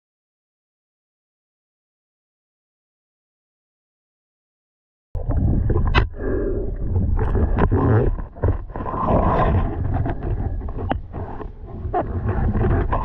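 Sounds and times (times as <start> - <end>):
muffled rushing water: 5.2 - 13.0.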